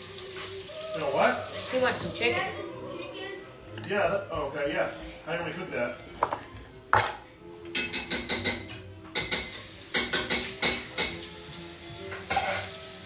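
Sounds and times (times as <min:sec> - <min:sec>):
food sizzling in a pan: 0:00.0 - 0:02.4, 0:09.1 - 0:13.0
metal utensils and dishes clattering: 0:06.2 - 0:11.3, 0:12.0 - 0:12.8.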